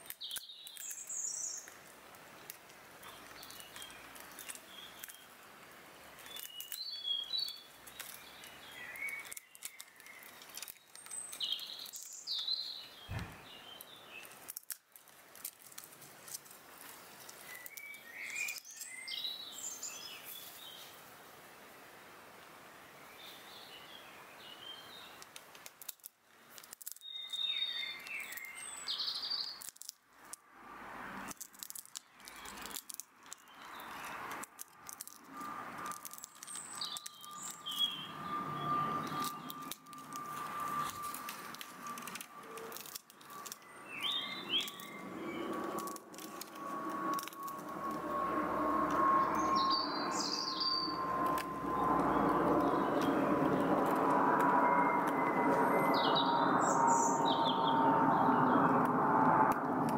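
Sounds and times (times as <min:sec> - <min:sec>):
birds chirping: 0:00.0 - 0:01.8, 0:03.0 - 0:05.4, 0:06.0 - 0:14.4, 0:17.0 - 0:21.0, 0:35.3 - 0:59.2
distant mechanical drone: 0:13.0 - 0:13.8, 0:35.1 - 0:59.9.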